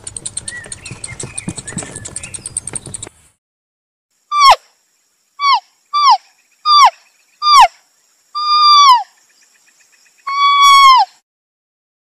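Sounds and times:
faint fast pulsing: 0.0 - 3.2
animal calling: 4.3 - 4.6, 5.4 - 7.7, 8.4 - 9.1, 10.3 - 11.2.

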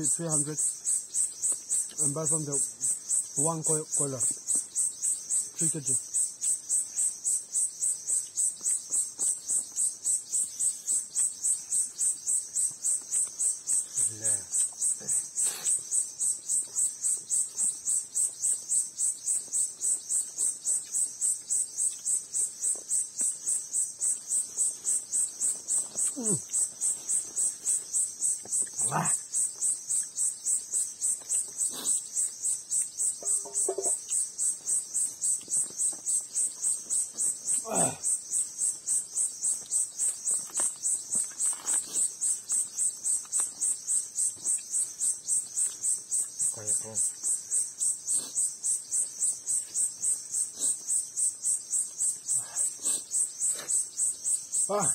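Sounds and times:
insect chirping: 0.0 - 54.9.

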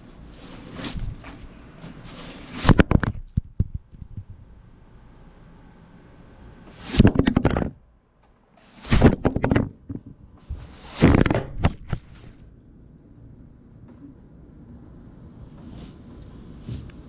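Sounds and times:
broom sweeping wooden deck: 0.2 - 2.9, 8.6 - 9.2, 10.4 - 11.2, 15.4 - 17.0
sharp knocks: 8.9 - 10.3.

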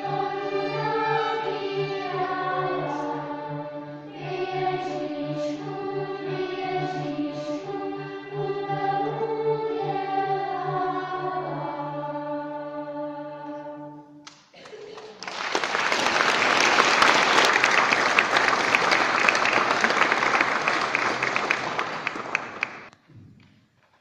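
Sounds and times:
children's choir singing: 0.0 - 14.1
audience applauding: 14.6 - 22.9.

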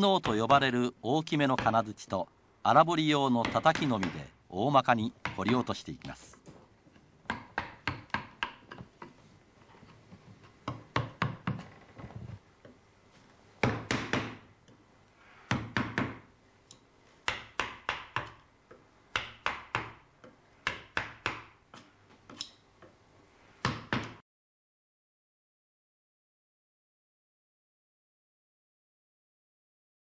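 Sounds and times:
hammer knocking on chisel: 3.4 - 4.3, 5.2 - 5.7, 7.3 - 9.2, 10.6 - 11.7, 13.6 - 14.5, 15.5 - 16.3, 17.2 - 21.9.

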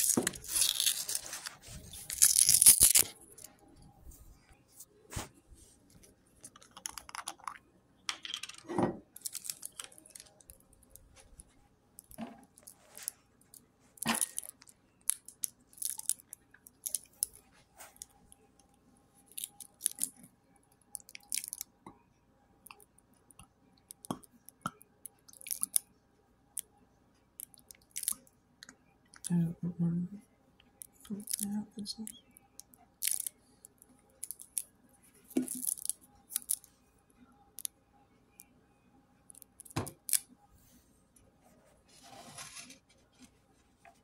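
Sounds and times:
kitchen items rustling and clicking: 6.0 - 11.4.

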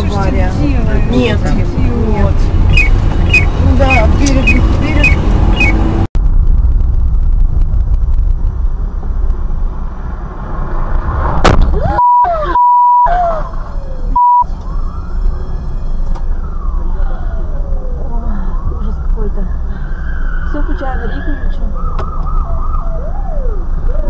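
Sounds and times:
vehicle driving rumble: 0.0 - 24.0
siren wailing: 0.8 - 6.0, 11.7 - 24.0
steady beep tone: 2.8 - 5.8, 11.9 - 13.1, 14.1 - 14.5.

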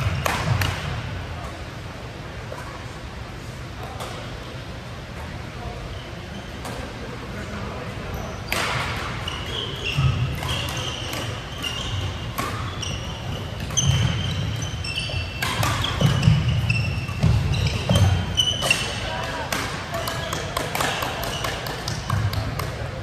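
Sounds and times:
racket hitting shuttlecock: 0.0 - 1.0, 10.0 - 22.9
sneakers squeaking on court: 8.1 - 22.9.

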